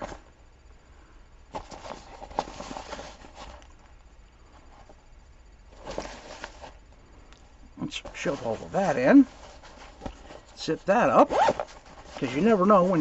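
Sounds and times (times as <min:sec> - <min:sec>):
fabric pouch rustling: 0:08.0 - 0:13.0.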